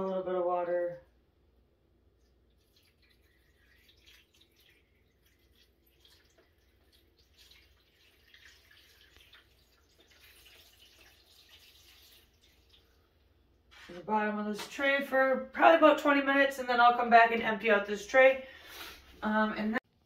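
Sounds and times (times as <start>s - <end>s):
water trickling onto soil: 2.2s - 13.0s.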